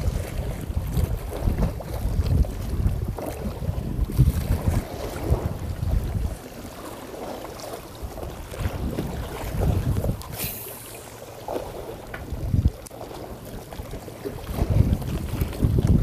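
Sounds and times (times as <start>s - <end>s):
wind buffeting microphone: 0.0s - 6.8s, 7.8s - 16.0s
short hiss: 10.3s - 11.0s.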